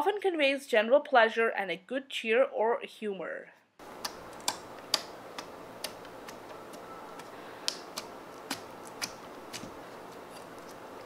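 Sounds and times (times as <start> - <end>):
slime clicking and popping: 4.0 - 6.5, 7.2 - 9.8.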